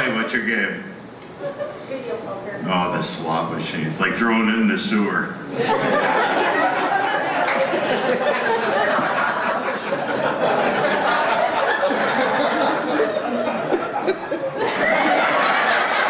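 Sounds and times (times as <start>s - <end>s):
audience laughing: 5.5s - 16.0s.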